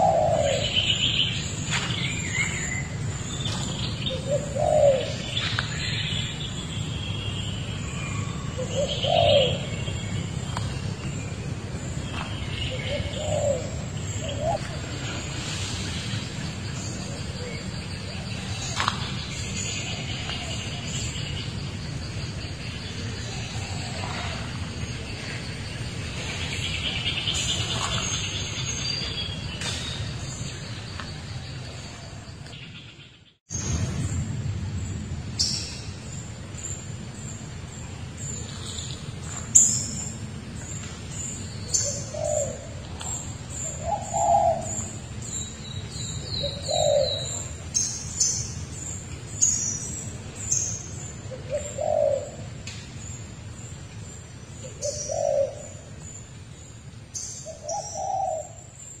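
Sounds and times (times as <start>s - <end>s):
dove cooing: 0.0s - 1.0s, 4.0s - 5.3s, 8.3s - 9.7s, 12.7s - 15.1s, 41.8s - 44.9s, 46.4s - 47.5s, 51.3s - 52.5s, 54.6s - 55.8s
forest insect chorus: 0.0s - 59.0s
small birds chirping: 0.0s - 59.0s.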